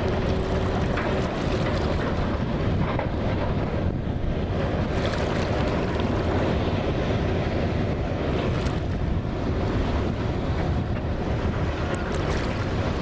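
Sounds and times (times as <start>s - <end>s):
water washing: 0.0s - 2.8s, 4.7s - 6.6s, 11.6s - 13.0s
low rumble of heavy vehicles: 0.0s - 13.0s
wind buffeting microphone: 0.0s - 13.0s.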